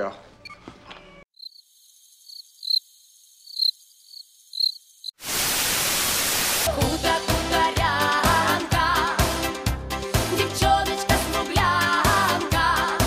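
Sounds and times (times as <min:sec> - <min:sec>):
crickets chirping: 0:01.3 - 0:05.2
tv static hiss: 0:05.1 - 0:06.8
music with a beat: 0:06.8 - 0:13.0.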